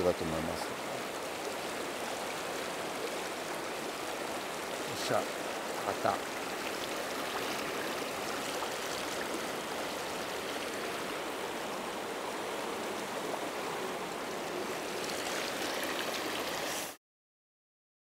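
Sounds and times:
river rapids rushing: 0.5s - 12.5s.

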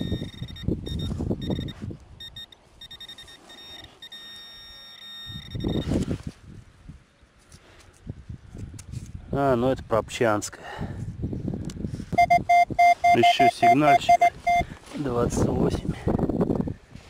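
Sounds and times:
metal detector beeping: 0.0s - 6.1s, 12.2s - 14.7s.

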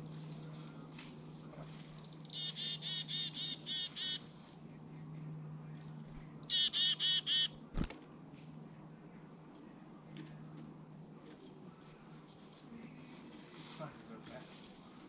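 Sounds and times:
chickadee calling: 1.4s - 4.3s, 6.4s - 7.6s.

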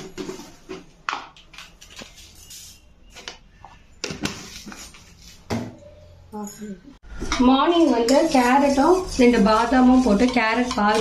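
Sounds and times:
containers and plate clinking: 9.2s - 11.0s.

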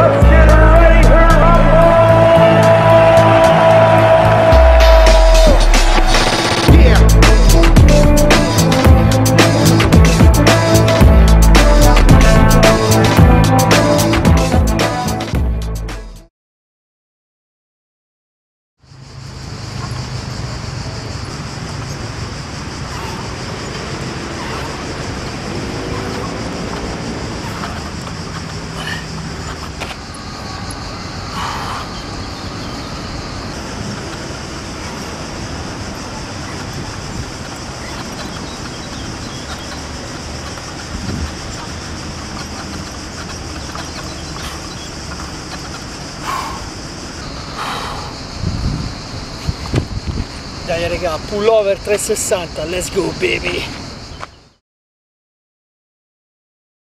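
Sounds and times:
low rumble: 4.4s - 9.1s.

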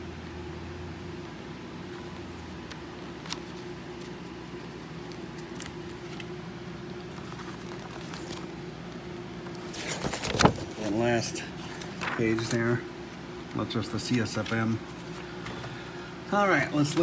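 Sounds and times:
low room hum: 0.0s - 17.0s
paper pages rustling: 1.8s - 12.8s, 13.5s - 15.8s.

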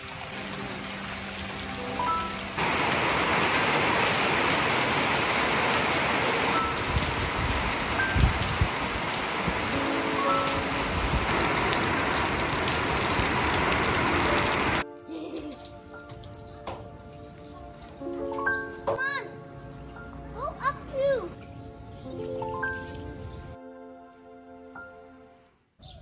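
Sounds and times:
heavy rain on roof tiles: 0.0s - 16.8s
faint background music: 14.8s - 25.5s.

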